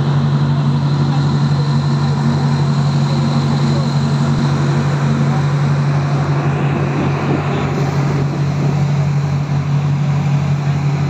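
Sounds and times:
boat engine droning: 0.0s - 11.0s
sea noise: 0.0s - 11.0s
wind: 0.0s - 11.0s.

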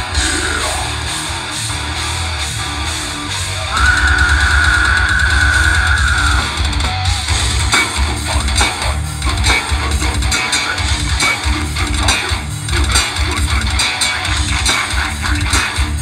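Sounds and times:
drums hitting hard and fast: 0.0s - 16.0s
metal band playing loud: 0.0s - 16.0s
long high guitar note: 3.6s - 6.6s.

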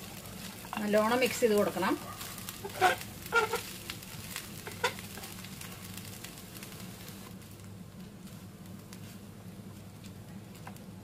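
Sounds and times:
light sizzle of frying: 0.0s - 11.0s
spatula scraping frying pan: 2.3s - 5.3s.

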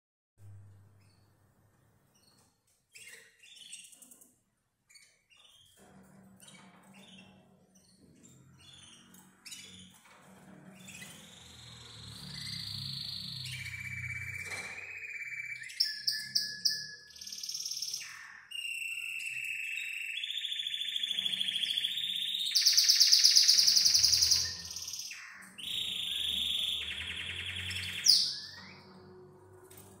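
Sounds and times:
canary singing trills: 10.8s - 29.8s.

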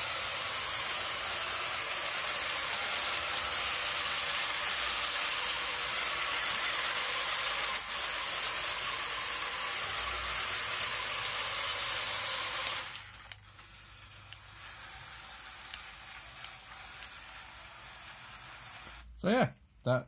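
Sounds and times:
robot vacuum motor hissing: 0.0s - 19.1s.

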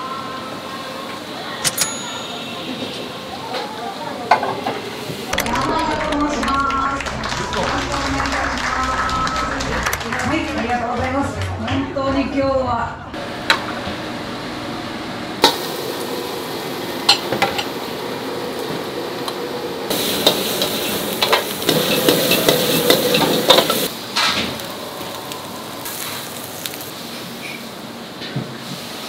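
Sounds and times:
frying sizzle: 13.2s - 29.0s
utensils knocking against pans: 20.3s - 23.9s.

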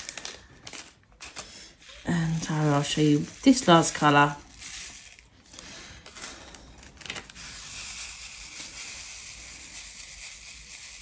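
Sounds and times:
small plastic beads pouring into a tray: 2.4s - 11.0s.

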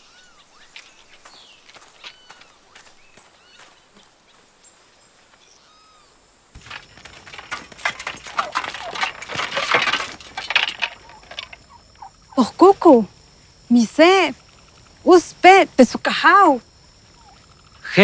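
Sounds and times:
soft bird chirps: 0.0s - 6.2s
clatter of knocks and rustles: 6.6s - 11.7s.

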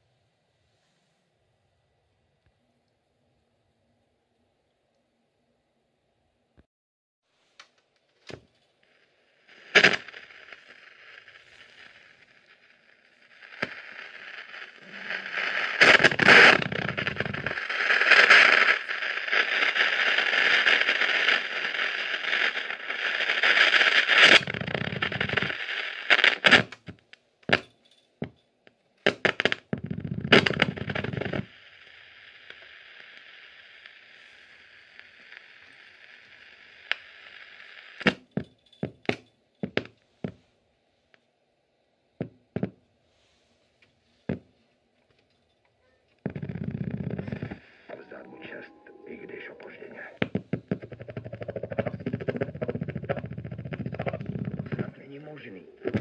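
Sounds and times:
radio speaker hiss and static: 7.6s - 27.7s, 29.0s - 40.4s, 45.8s - 56.0s
sharp crackles and clicks: 7.6s - 40.4s, 43.8s - 56.0s.

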